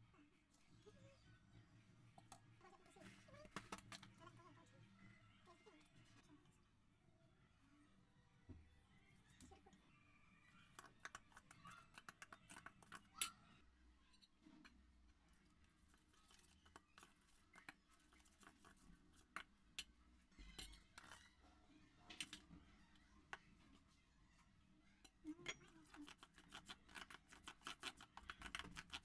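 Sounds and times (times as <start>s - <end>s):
spoon scraping metal bowl: 20.4s - 21.4s, 25.3s - 29.0s.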